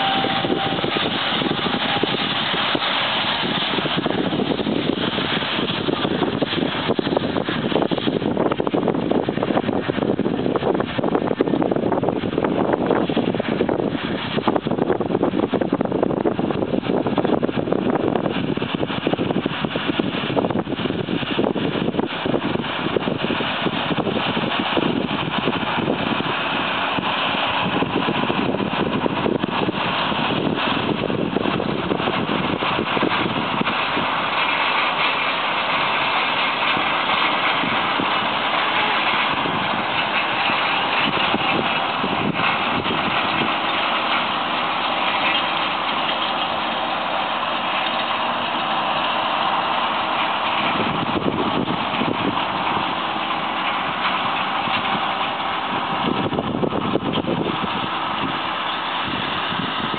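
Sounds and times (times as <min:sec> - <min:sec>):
tractor and baler droning: 0:00.0 - 0:59.9.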